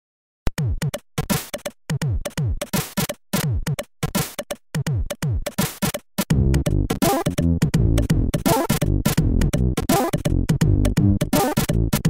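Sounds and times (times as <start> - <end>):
chiptune drum pattern: 0.5 - 12.0
chiptune bass and chords: 6.2 - 12.0.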